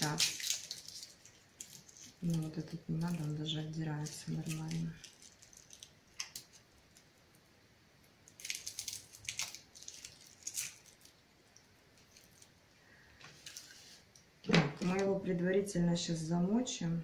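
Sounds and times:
garlic skin rustling: 0:00.0 - 0:07.1, 0:08.2 - 0:14.2.

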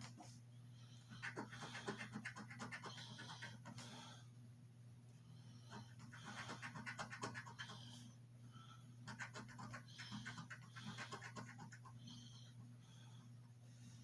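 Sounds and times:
steady low hum: 0:00.0 - 0:14.0
coin scratching lottery ticket: 0:06.0 - 0:07.7, 0:09.1 - 0:11.9.

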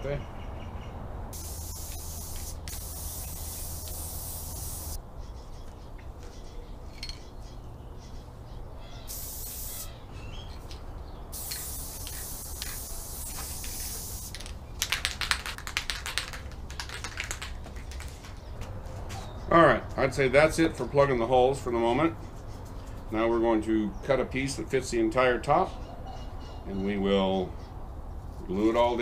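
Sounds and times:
aerosol can hissing: 0:01.4 - 0:05.0, 0:09.1 - 0:10.0, 0:11.4 - 0:14.5.

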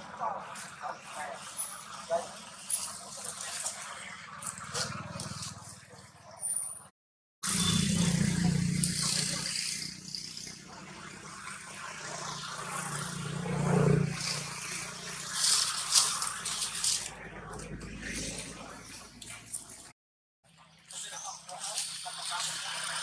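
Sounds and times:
motor engine running: 0:00.0 - 0:06.4, 0:07.4 - 0:19.9.

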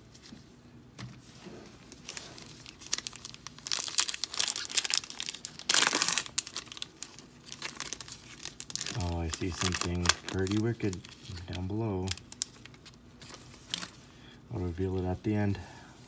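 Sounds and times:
wrapper crinkling and tearing: 0:01.9 - 0:14.0.

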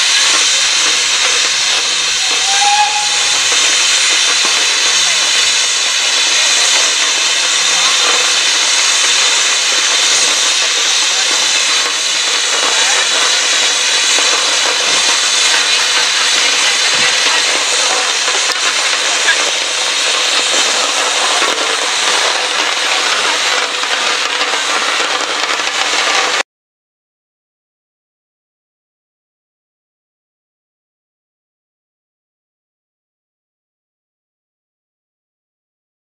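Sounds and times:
steam roller hissing: 0:00.0 - 0:26.4
short squeak: 0:02.4 - 0:03.2.

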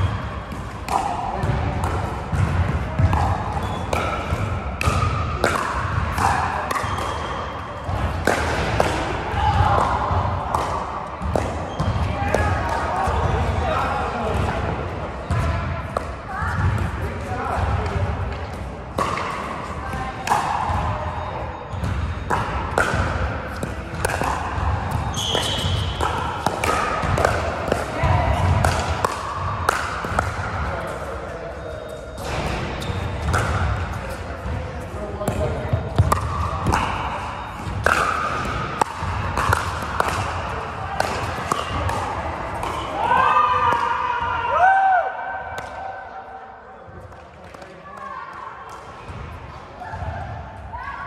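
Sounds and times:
ball bouncing on hard court: 0:00.0 - 0:31.1, 0:32.2 - 0:44.0
players' voices: 0:00.0 - 0:51.0
paddle striking ball: 0:35.3 - 0:40.4.

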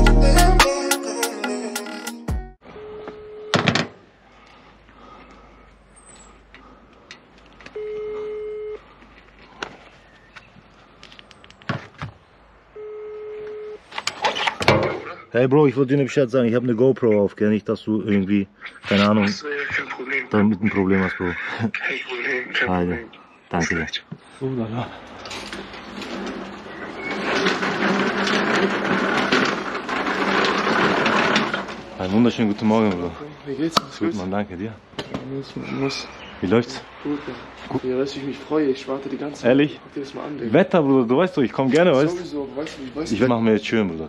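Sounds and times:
phone ringback tone: 0:02.7 - 0:03.8, 0:07.8 - 0:08.8, 0:12.8 - 0:13.8
lawn mower rattling over stone tiles: 0:25.0 - 0:33.1.

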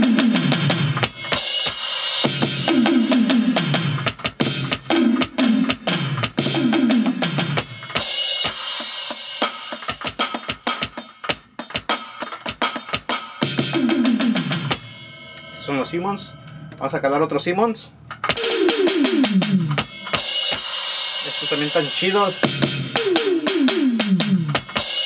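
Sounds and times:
electronic tom hits: 0:00.0 - 0:08.7, 0:18.2 - 0:20.9
hissing cymbal-like washes: 0:18.4 - 0:22.4.

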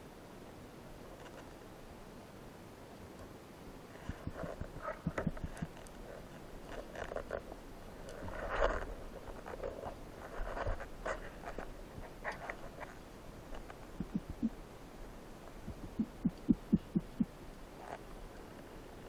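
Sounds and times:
scratchy scraping noises: 0:03.9 - 0:14.6.

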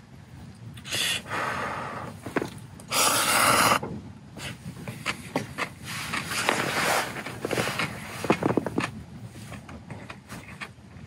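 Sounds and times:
person slurping noodles: 0:02.9 - 0:03.8.

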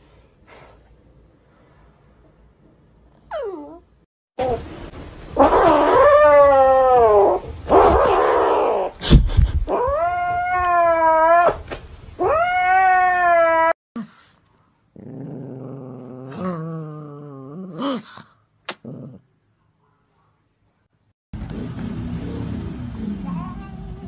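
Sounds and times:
kitten yowling and growling: 0:05.4 - 0:09.0, 0:09.7 - 0:11.6, 0:12.2 - 0:13.8.

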